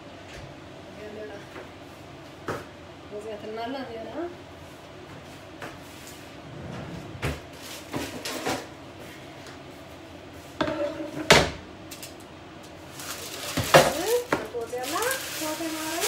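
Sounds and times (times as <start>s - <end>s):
kitchen knocks and clatter: 10.6s - 11.6s, 13.5s - 14.6s.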